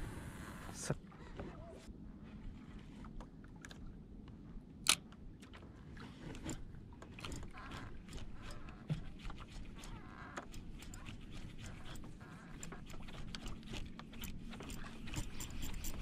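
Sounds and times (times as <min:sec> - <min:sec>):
fishing reel clicking: 0:14.7 - 0:16.0.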